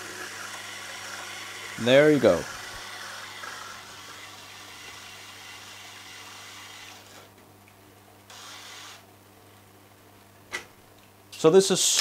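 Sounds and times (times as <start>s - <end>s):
sharpening machine humming: 0.0s - 7.4s, 8.3s - 9.0s.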